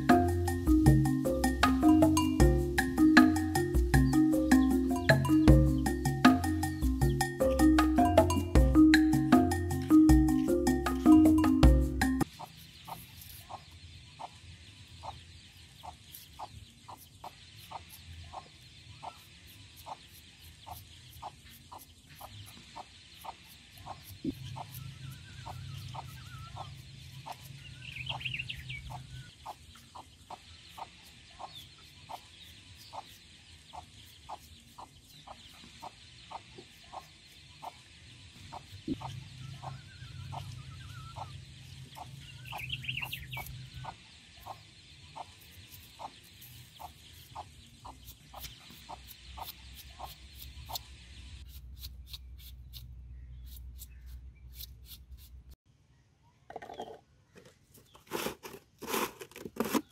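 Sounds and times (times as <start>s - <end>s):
hen clucking: 6.8s - 14.4s, 15.0s - 15.2s, 15.8s - 20.1s, 20.7s - 50.9s
knife slicing onion: 51.5s - 55.5s.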